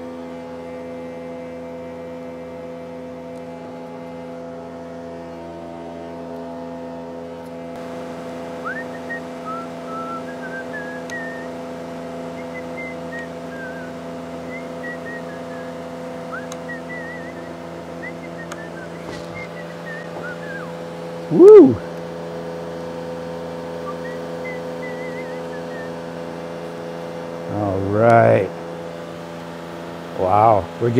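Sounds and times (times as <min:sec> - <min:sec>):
electrical hum: 0:00.0 - 0:30.9
man whistling a tune: 0:08.6 - 0:11.6, 0:12.3 - 0:21.8, 0:23.8 - 0:26.1
man shouting woo: 0:21.3 - 0:21.9.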